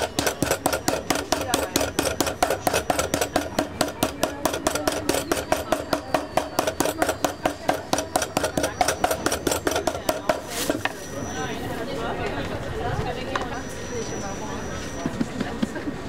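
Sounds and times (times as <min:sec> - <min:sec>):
meat mallet pounding meat: 0:00.0 - 0:10.5.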